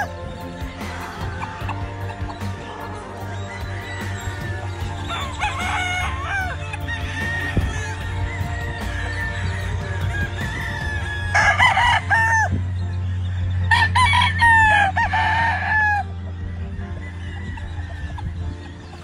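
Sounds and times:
rooster crowing: 0.0 - 12.6, 13.7 - 16.1.

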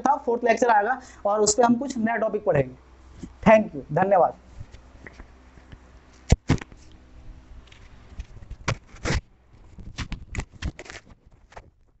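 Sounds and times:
microphone rubbing against clothing: 4.4 - 11.5.

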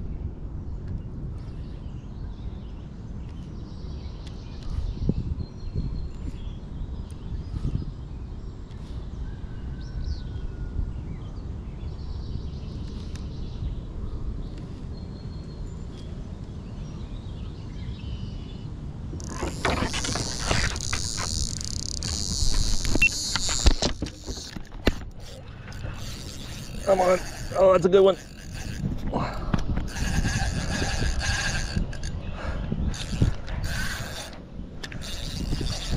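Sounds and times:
fishing reel whirring and ticking: 19.2 - 35.9.

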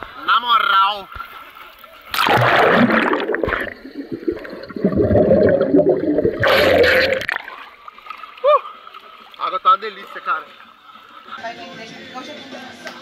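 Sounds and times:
water splashing: 1.1 - 11.3
muffled underwater rush: 2.0 - 8.1.

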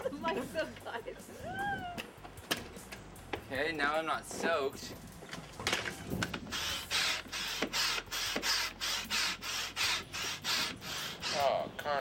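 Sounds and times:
air pump strokes: 6.0 - 11.6.

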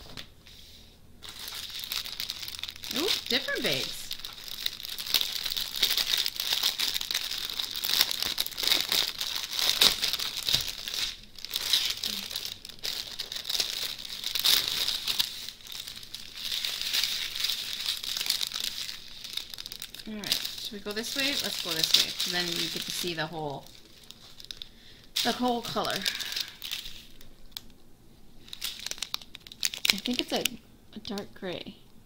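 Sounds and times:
plastic packaging crinkling: 1.2 - 31.3.

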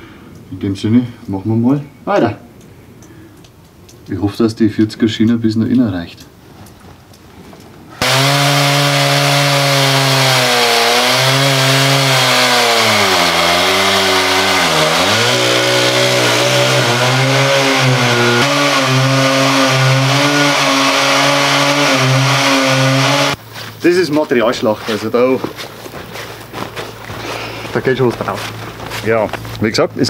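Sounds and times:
chainsaw engine cutting concrete: 8.0 - 23.4.

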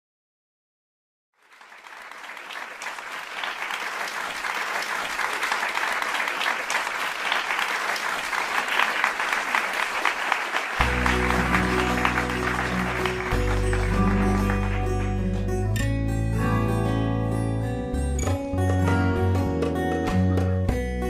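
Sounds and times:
crowd applauding: 1.4 - 15.7.

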